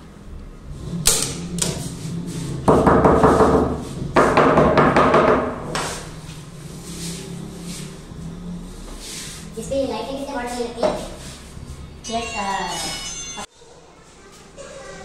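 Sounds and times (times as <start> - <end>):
hammer striking wooden rail: 2.7 - 5.9.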